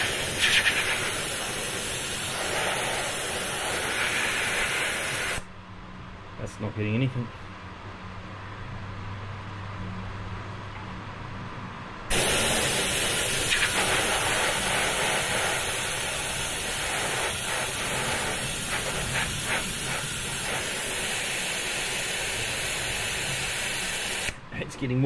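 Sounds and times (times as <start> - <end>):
oil extractor hiss of air: 0.0 - 5.5, 12.1 - 24.4.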